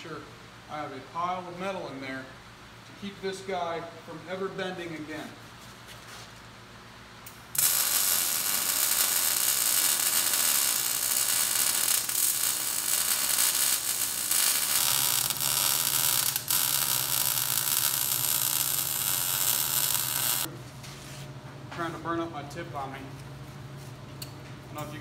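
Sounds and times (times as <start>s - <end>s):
welding arc crackling: 7.3s - 20.5s.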